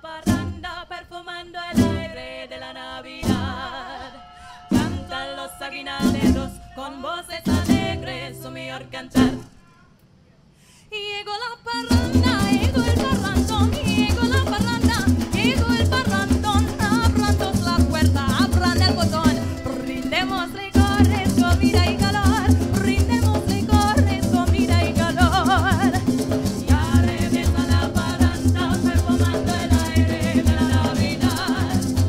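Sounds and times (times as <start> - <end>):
group singing: 0.0 - 9.5, 11.8 - 17.5, 21.0 - 32.0
acoustic guitar chords: 1.7 - 2.2, 4.7 - 6.8, 7.4 - 9.5, 11.9 - 32.0
band strumming with percussion: 4.7 - 5.3, 6.0 - 6.7, 7.4 - 8.1, 11.9 - 32.0.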